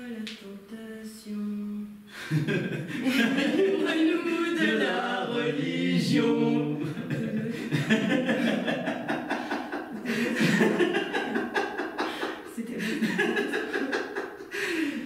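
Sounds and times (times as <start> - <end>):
man and woman singing chant: 3.0 - 7.4.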